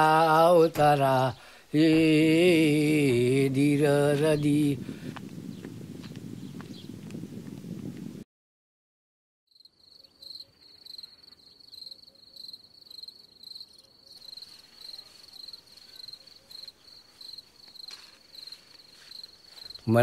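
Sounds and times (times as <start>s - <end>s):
cricket chirping: 9.5s - 19.9s.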